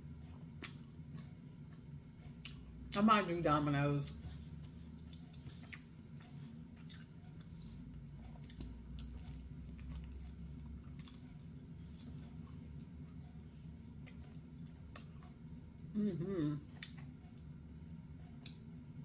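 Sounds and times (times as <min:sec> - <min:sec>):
low steady hum: 0:00.0 - 0:19.0
person chewing crunchy crust: 0:04.9 - 0:07.6, 0:08.2 - 0:13.2.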